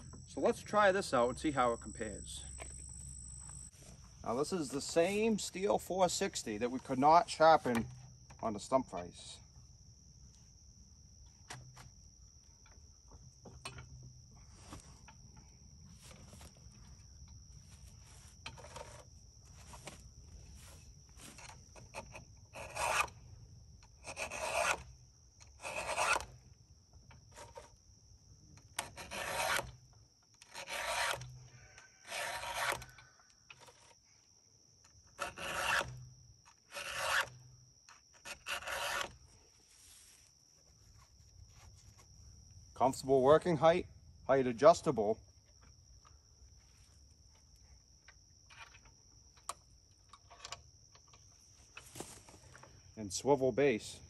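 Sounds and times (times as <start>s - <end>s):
file strokes on chainsaw chain: 21.2s - 23.2s, 24.0s - 24.9s, 25.5s - 26.4s, 28.8s - 29.8s, 30.4s - 31.4s, 32.0s - 33.0s, 35.1s - 36.0s, 36.7s - 39.2s.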